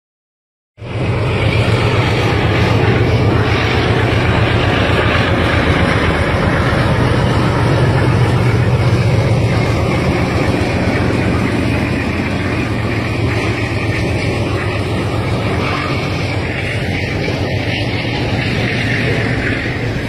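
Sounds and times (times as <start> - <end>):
locomotive engine humming: 0.8 - 20.0
train cars rumbling over rails: 0.8 - 20.0.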